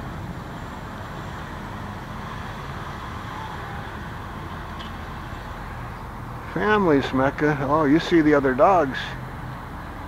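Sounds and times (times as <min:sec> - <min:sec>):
distant city traffic hum: 0:00.0 - 0:10.0.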